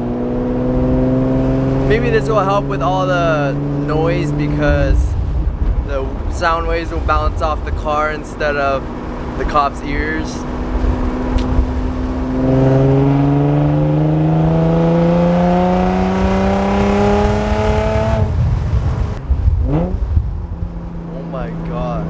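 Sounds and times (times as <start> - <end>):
car exhaust droning while accelerating: 0.0 - 22.0.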